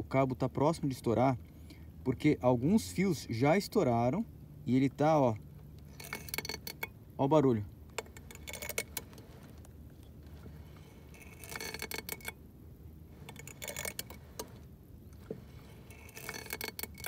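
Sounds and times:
steel cable scraping and ticking: 5.0 - 17.0.

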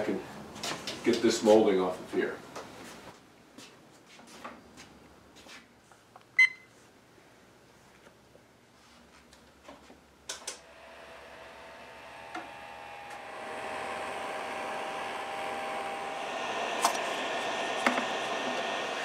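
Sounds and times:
heat gun fan whining: 10.3 - 19.0.

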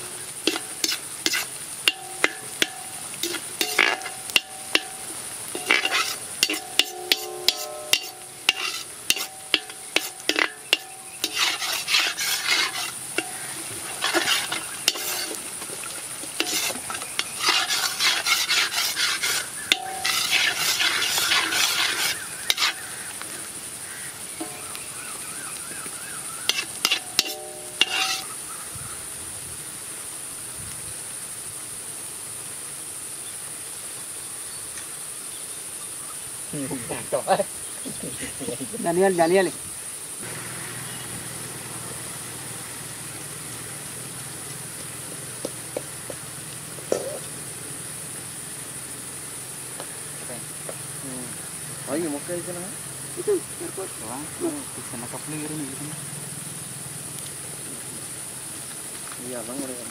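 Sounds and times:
metal ladle scraping iron pan: 0.0 - 15.6, 16.2 - 23.0, 24.4 - 25.0, 26.4 - 28.4
food sizzling in oil: 0.0 - 32.3, 38.4 - 59.9
faint steady hiss: 0.0 - 59.9.

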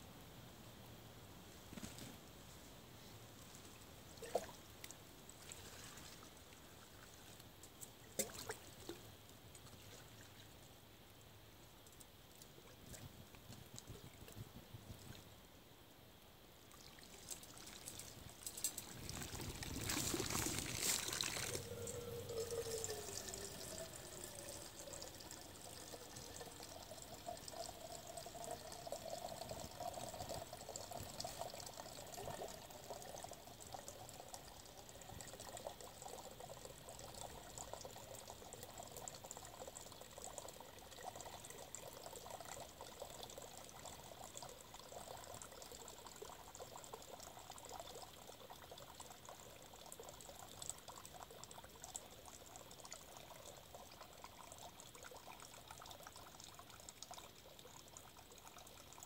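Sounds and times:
water trickling into bottle: 16.7 - 59.0
water splashing rush: 19.0 - 24.6.

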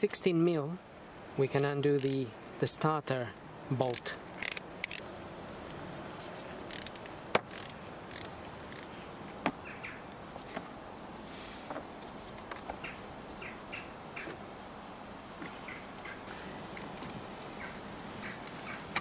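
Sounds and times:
ratchet clicking: 2.0 - 2.2, 3.9 - 5.0, 6.7 - 8.9.

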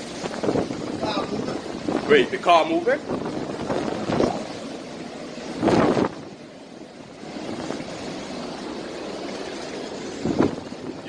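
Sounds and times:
rushing wind and rain: 0.0 - 11.0.

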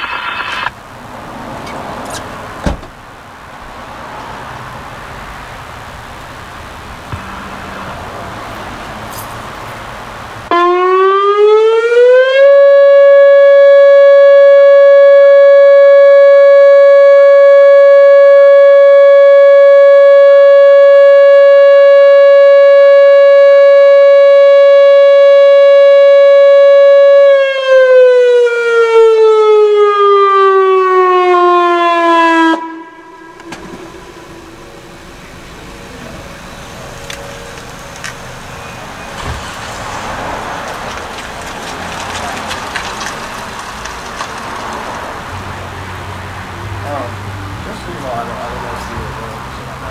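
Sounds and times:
electronic warning siren: 0.0 - 0.7, 10.5 - 36.1.

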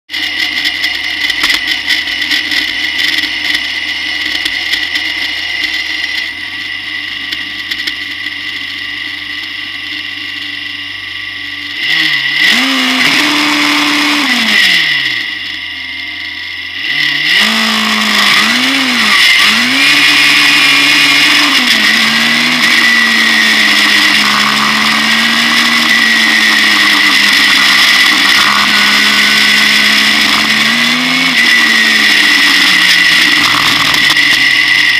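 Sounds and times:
racing car engine revving: 11.7 - 34.9.

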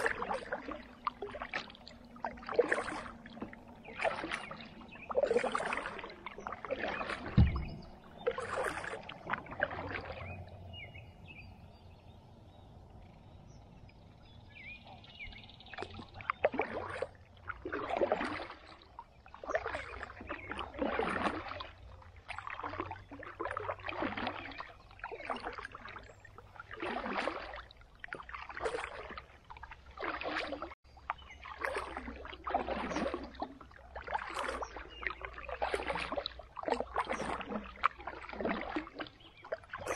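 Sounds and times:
paddle splashes and drips: 0.0 - 39.9
hollow knock: 7.3 - 8.0.

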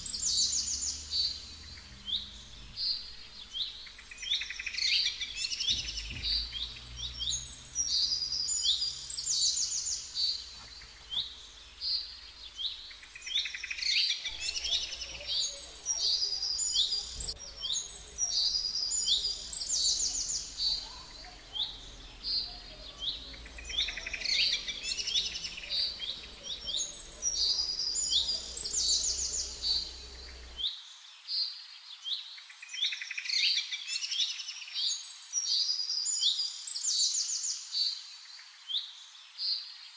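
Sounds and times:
songbirds chirping and singing: 0.0 - 39.9.

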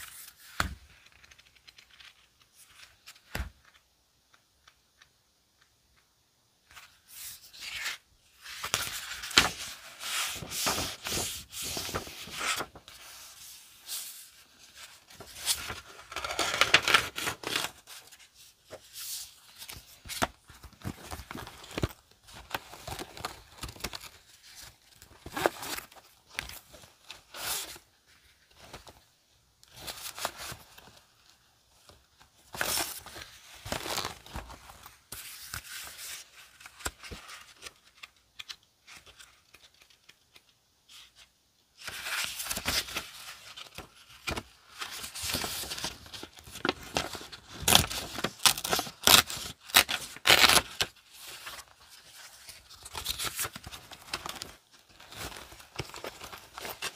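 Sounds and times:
paper and plastic pouch rustling: 29.7 - 40.2, 41.8 - 56.9.

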